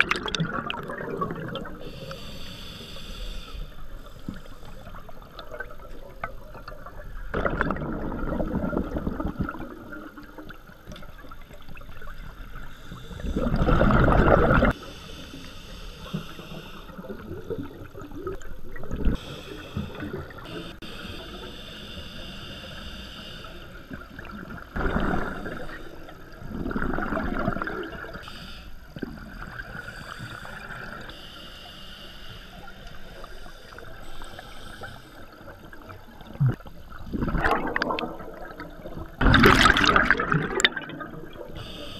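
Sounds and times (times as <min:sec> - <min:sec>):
underwater air bubbling: 0:00.0 - 0:41.9
regulator hiss: 0:01.8 - 0:04.9, 0:14.8 - 0:17.2, 0:19.2 - 0:24.1, 0:28.2 - 0:29.0, 0:29.7 - 0:35.7, 0:41.5 - 0:41.9.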